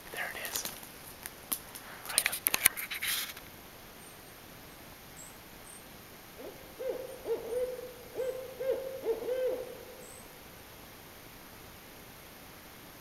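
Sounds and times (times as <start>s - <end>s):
owl hooting call: 6.4s - 10.3s.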